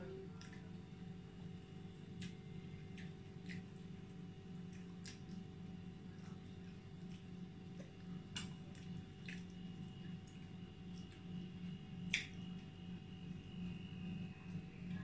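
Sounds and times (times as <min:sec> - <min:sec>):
steady low hum: 0:00.0 - 0:15.0
chewing: 0:02.1 - 0:11.3.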